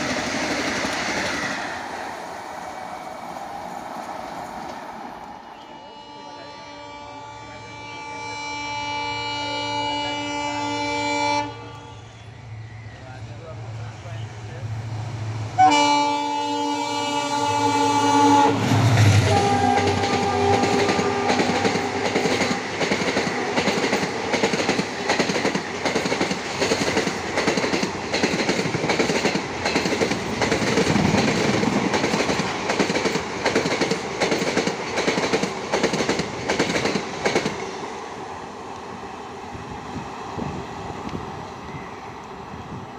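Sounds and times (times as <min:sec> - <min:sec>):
train wheels clattering on rails: 0:00.0 - 0:01.8, 0:18.6 - 0:37.7
train horn: 0:05.4 - 0:12.3, 0:15.6 - 0:22.7
locomotive passing loudly: 0:12.2 - 0:42.9.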